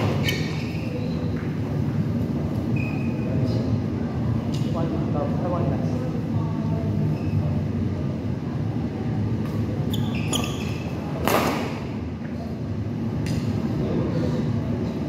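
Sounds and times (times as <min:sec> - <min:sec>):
loud sharp smack: 0:11.2 - 0:11.8
shuttlecock hits: 0:11.2 - 0:11.9.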